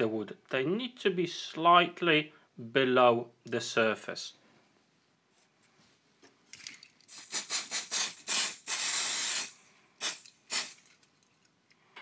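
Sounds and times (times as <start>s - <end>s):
aerosol can spraying: 7.1s - 10.8s.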